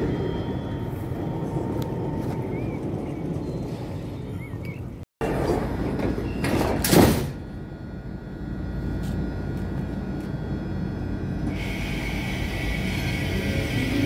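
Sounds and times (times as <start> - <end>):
tram rumbling: 0.0 - 14.0
hiss: 11.5 - 14.0.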